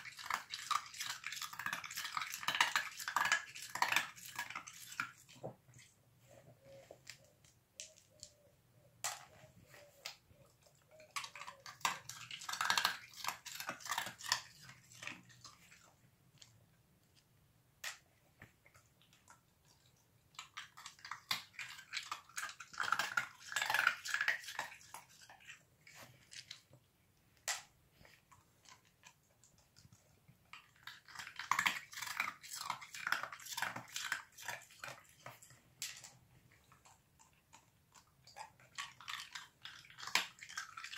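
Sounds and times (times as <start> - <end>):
puppy crunching ice: 0.0 - 5.5, 11.0 - 16.5, 20.4 - 26.6, 30.6 - 40.9.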